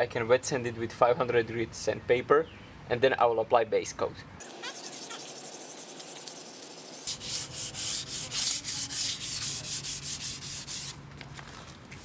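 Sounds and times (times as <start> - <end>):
hand sanding strokes: 4.5 - 11.0.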